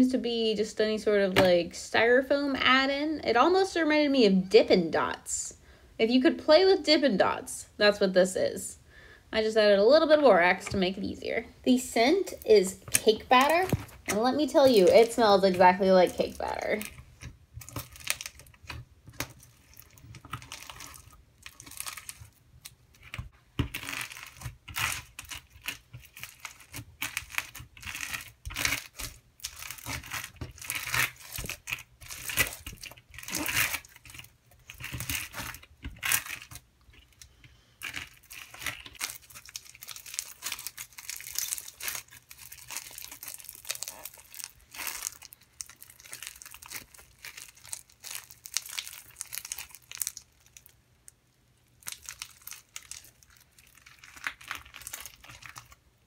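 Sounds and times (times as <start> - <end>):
slime crackling and crunching: 12.0 - 50.8, 51.6 - 56.0.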